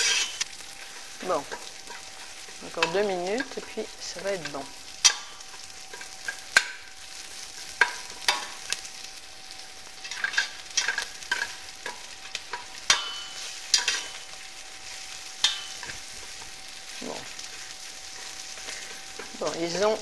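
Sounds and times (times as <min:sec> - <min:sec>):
spatula scraping and knocking pot: 0:00.0 - 0:03.8
onions sizzling in a pot: 0:00.0 - 0:20.0.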